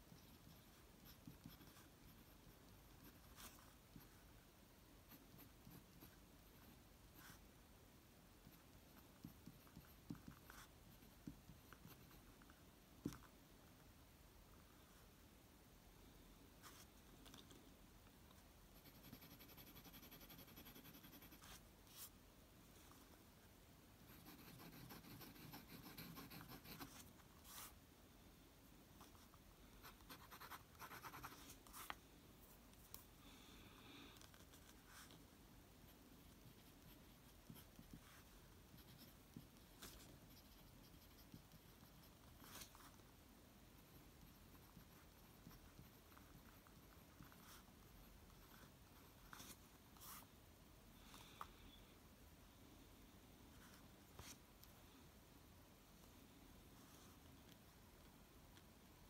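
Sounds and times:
fountain pen scratching paper: 0:00.1 - 0:03.6, 0:18.8 - 0:21.6, 0:24.1 - 0:27.8, 0:29.8 - 0:31.9, 0:36.5 - 0:42.9.

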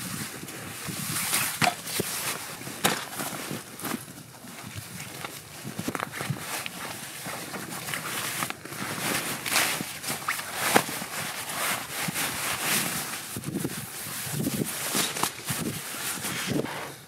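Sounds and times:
nylon gear rustling: 0:00.1 - 0:16.7.

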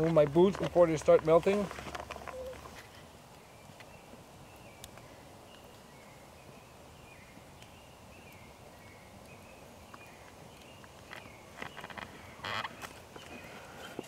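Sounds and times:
campfire crackling: 0:00.0 - 0:14.0
fire popping: 0:00.0 - 0:14.0
faint bird chirps: 0:02.3 - 0:02.6.

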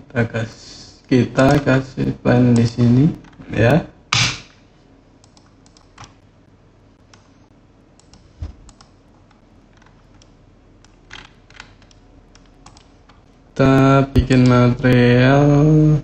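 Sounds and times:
keyboard and mouse clicks: 0:05.2 - 0:06.2, 0:08.0 - 0:13.3.

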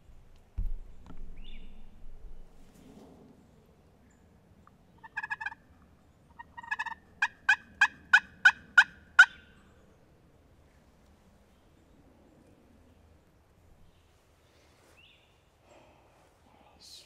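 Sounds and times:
turkey yelping: 0:05.0 - 0:05.6, 0:06.4 - 0:09.4.

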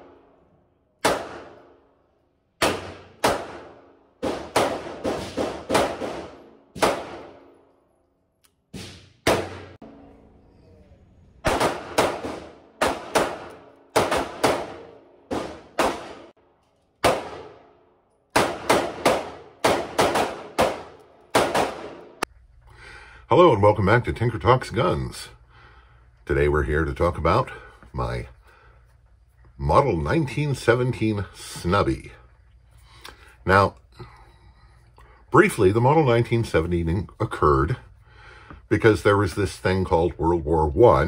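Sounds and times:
revolver gunshots with echo: 0:01.0 - 0:01.9, 0:02.6 - 0:07.6, 0:08.8 - 0:09.8, 0:11.4 - 0:16.4, 0:17.0 - 0:22.2.

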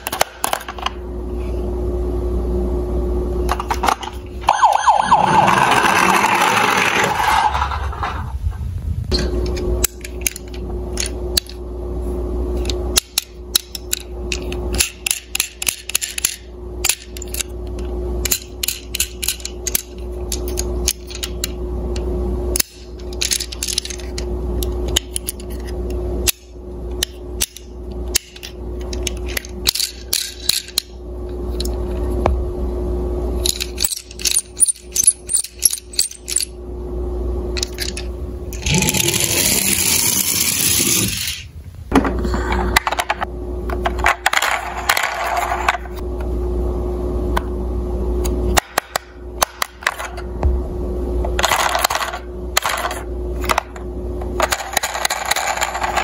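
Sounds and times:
low hum: 0:00.0 - 0:56.0
toy cars clicking and clattering: 0:05.4 - 0:08.2, 0:12.6 - 0:17.5, 0:18.2 - 0:21.6, 0:22.6 - 0:24.2, 0:27.0 - 0:30.9, 0:33.4 - 0:36.5, 0:37.6 - 0:41.4, 0:51.4 - 0:53.6, 0:54.4 - 0:56.0.

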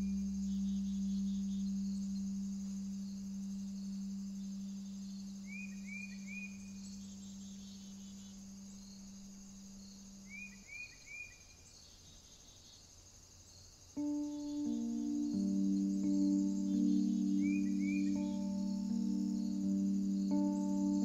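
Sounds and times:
long low held note: 0:00.0 - 0:08.8, 0:14.0 - 0:21.0
bird-like chirps: 0:00.0 - 0:12.8, 0:14.0 - 0:21.0
high insect-like chirring: 0:00.0 - 0:21.0.

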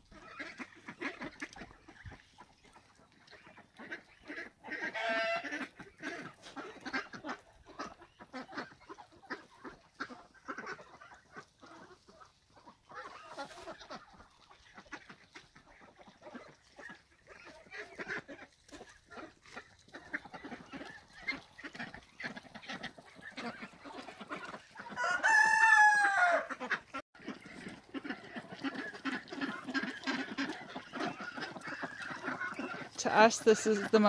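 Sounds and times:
hens clucking and cackling: 0:00.0 - 0:34.0.

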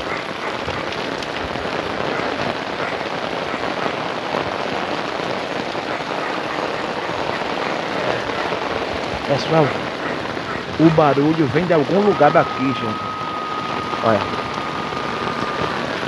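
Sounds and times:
heavy rain splashing into water: 0:00.0 - 0:16.0.

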